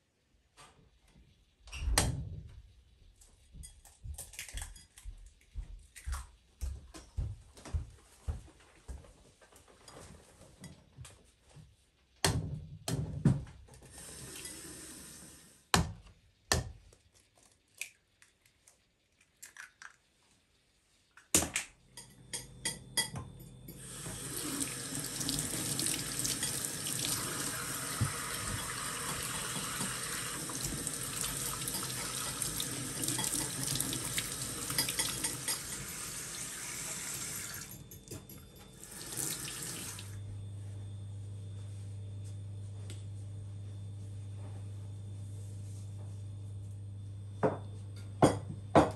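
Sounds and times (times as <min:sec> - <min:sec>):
tap running into a metal sink: 0:27.9 - 0:35.7.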